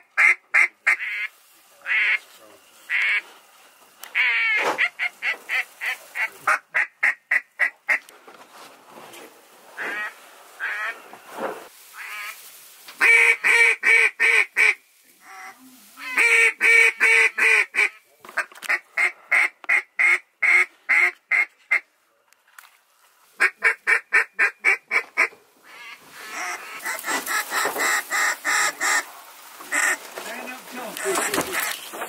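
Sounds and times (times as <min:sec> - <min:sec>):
duck call quacks: 0:00.0 - 0:02.2, 0:02.9 - 0:03.2, 0:04.1 - 0:08.0, 0:09.8 - 0:11.0, 0:12.0 - 0:12.4, 0:13.0 - 0:21.8, 0:23.4 - 0:29.1, 0:29.7 - 0:30.2.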